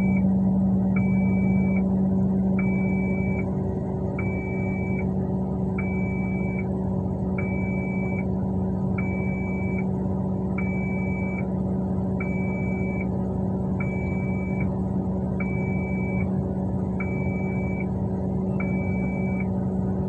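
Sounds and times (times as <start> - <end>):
reversing alarm beeping: 0.0 - 0.3, 1.0 - 1.9, 2.6 - 3.5, 4.2 - 5.1, 5.8 - 6.7, 7.4 - 8.3, 9.0 - 9.8, 10.6 - 11.5, 12.2 - 13.1, 13.8 - 14.7, 15.4 - 16.3, 17.0 - 19.5
heavy diesel machinery drone: 0.0 - 20.0.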